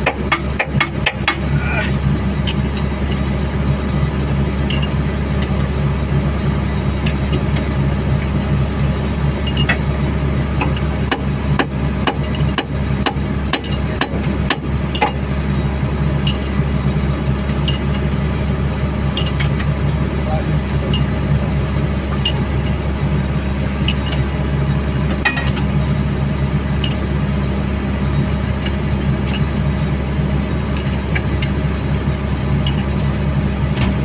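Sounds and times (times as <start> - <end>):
tools tapping on steel: 0.0 - 1.5, 10.6 - 15.2, 19.2 - 19.7, 25.2 - 25.7
engine idling: 0.0 - 34.0.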